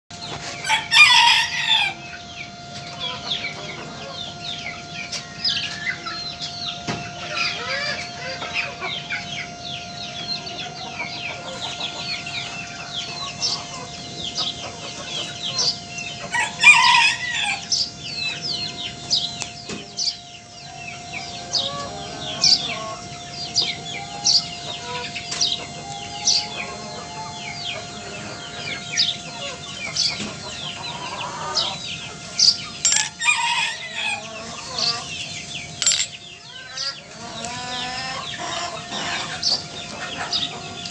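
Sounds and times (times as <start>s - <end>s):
chickens clucking: 0.1s - 40.9s
chicks chirping: 0.1s - 40.9s
rooster crowing: 0.6s - 2.1s, 15.5s - 18.3s, 20.2s - 35.2s.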